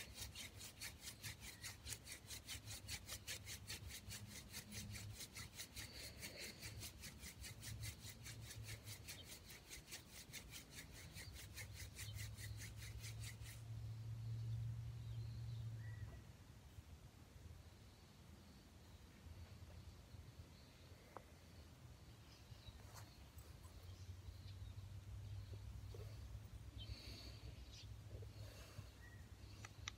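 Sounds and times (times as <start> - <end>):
wooden spindle rasping: 0.0 - 13.7.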